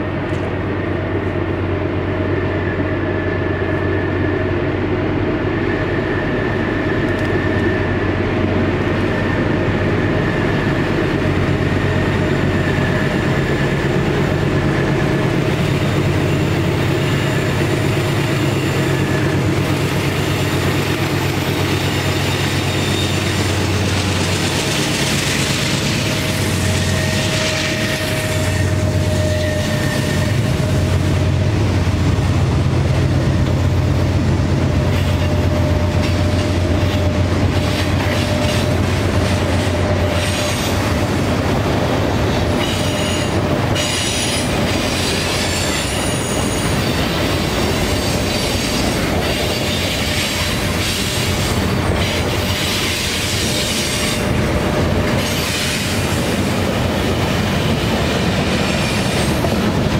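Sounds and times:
diesel locomotive engine drone: 0.0 - 59.9
high wheel squeals: 20.1 - 31.3, 42.5 - 54.4
train wheels clattering: 34.6 - 59.9.

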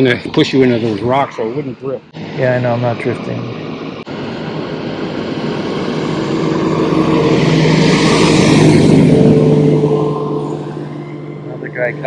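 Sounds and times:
outboard motor passing: 4.0 - 12.0.

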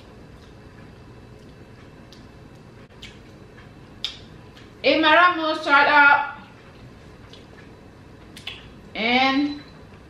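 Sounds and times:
low room noise: 0.0 - 10.0
chewing and lip smacking: 0.3 - 4.8, 7.2 - 8.8.

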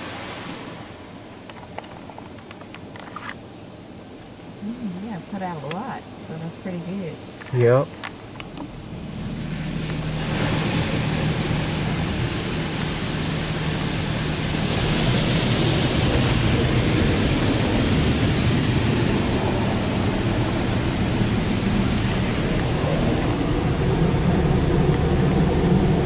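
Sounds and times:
water jets hitting car: 7.6 - 26.0
low hum: 8.1 - 26.0.

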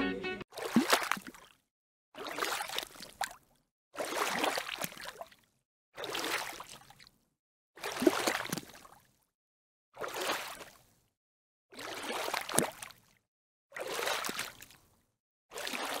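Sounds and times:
water splashing: 0.5 - 1.5, 4.0 - 5.3, 6.0 - 7.0, 7.8 - 8.9, 11.8 - 13.0, 15.5 - 16.0.

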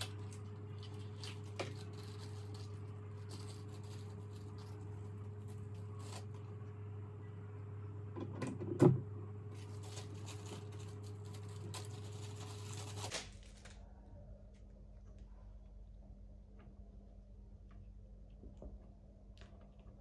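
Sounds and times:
plastic bags rustling: 0.0 - 6.4, 9.5 - 13.8
steady low hum: 0.0 - 20.0.

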